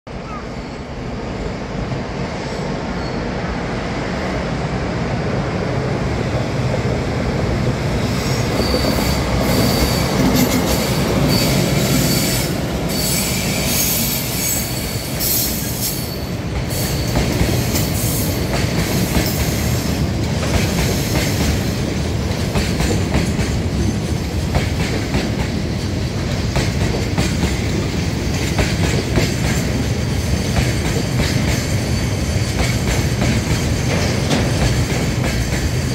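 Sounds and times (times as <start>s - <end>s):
freight train rumbling past: 0.1s - 35.9s
high wheel squeal: 8.1s - 17.2s.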